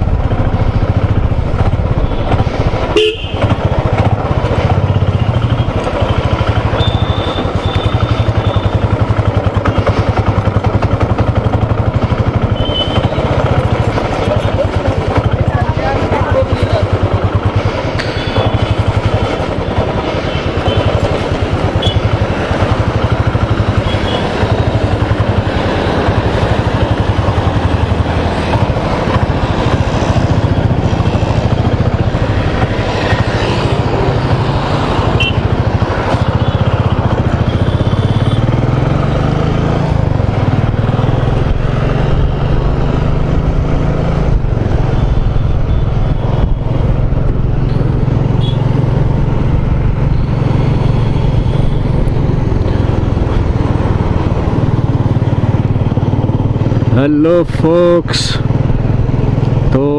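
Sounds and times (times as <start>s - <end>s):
wind rush: 0.0s - 5.0s
motorcycle engine running: 0.0s - 59.9s.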